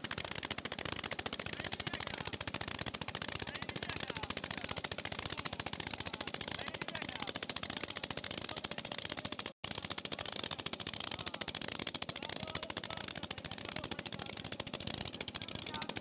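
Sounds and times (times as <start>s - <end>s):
boat diesel engine running: 0.0s - 16.0s.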